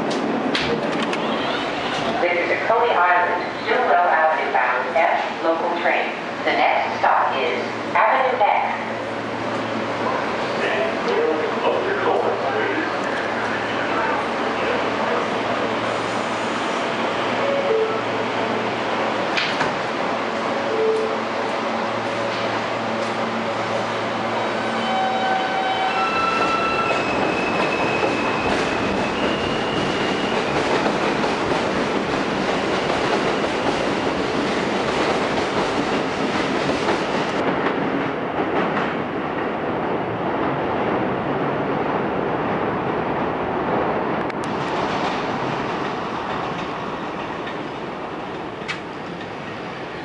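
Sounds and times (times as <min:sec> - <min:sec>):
train wheels rolling on rails: 0:21.0 - 0:39.6.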